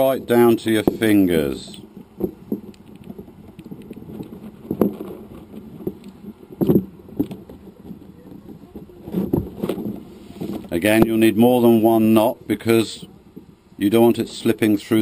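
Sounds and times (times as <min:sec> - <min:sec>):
kite lines rustling: 0:00.0 - 0:15.0
plastic knocks: 0:02.1 - 0:10.0.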